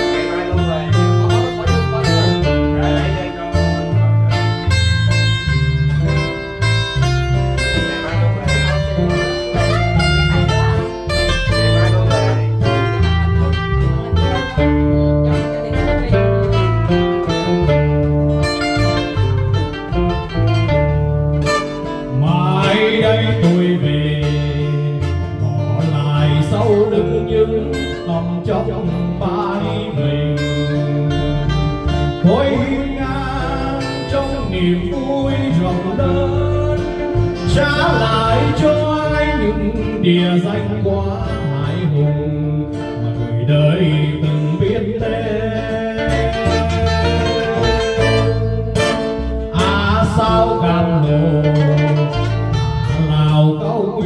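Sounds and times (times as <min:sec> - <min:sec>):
acoustic guitars: 0:00.0 - 0:54.0
electric bass: 0:00.0 - 0:54.0
man singing into a microphone: 0:21.9 - 0:54.0.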